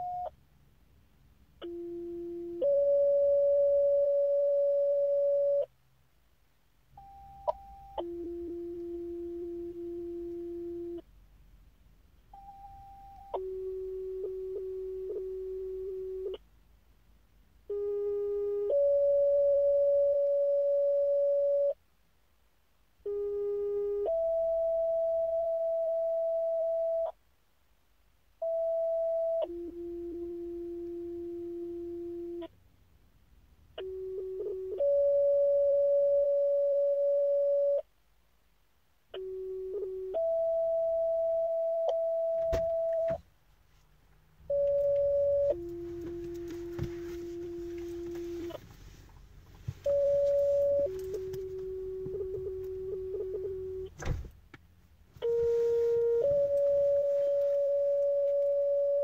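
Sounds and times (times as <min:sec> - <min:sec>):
two-tone pager tones: 0:01.6 - 0:05.7, 0:17.7 - 0:21.8, 0:33.8 - 0:37.8, 0:44.5 - 0:48.6, 0:49.8 - 0:53.8, 0:55.2 - 0:59.0.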